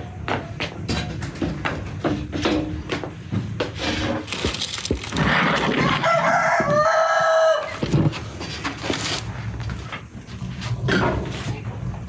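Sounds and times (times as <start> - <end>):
rooster crowing: 5.6 - 8.1.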